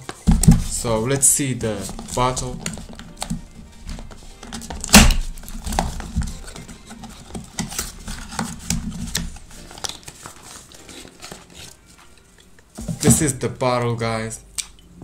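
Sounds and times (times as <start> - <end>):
cardboard box rustling and scraping: 0.2 - 12.1.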